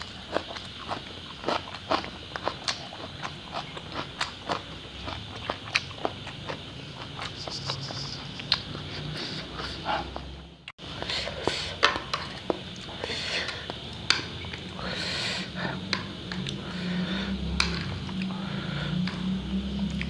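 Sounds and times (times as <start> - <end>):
chewing and slurping: 0.0 - 10.4, 11.0 - 20.0
heavy breathing and sniffing: 7.2 - 11.8, 12.9 - 13.8, 14.7 - 15.9, 16.5 - 17.5, 18.3 - 19.1
chopsticks clicking on plate: 17.6 - 18.2.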